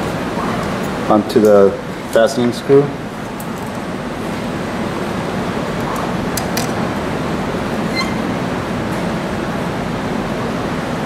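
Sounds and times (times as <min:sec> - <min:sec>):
ventilation rumble: 0:00.0 - 0:11.0.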